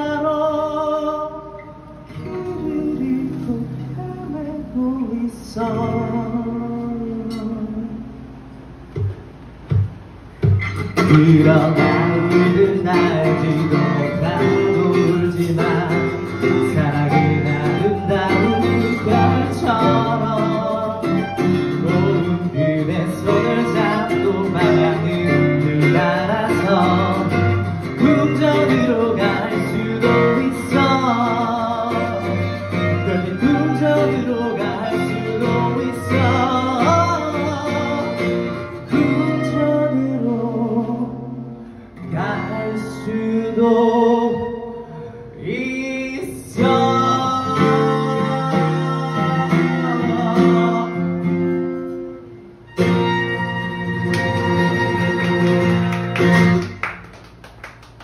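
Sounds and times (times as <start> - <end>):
man singing: 0.0 - 8.3, 10.8 - 51.9
acoustic guitar: 0.0 - 58.0
violin: 13.8 - 40.3, 52.7 - 56.6.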